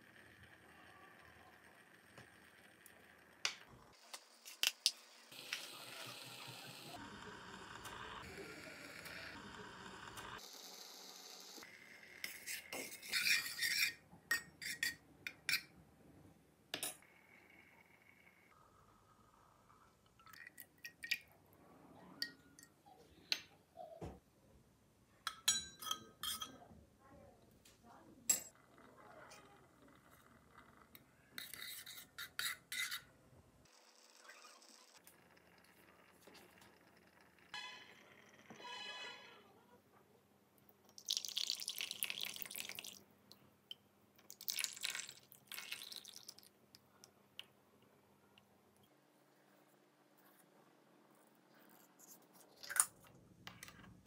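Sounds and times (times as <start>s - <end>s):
utensils clinking on steel pot: 25.2s - 26.6s
coffee trickling into metal cups: 35.0s - 37.0s, 40.9s - 43.0s, 44.2s - 46.5s.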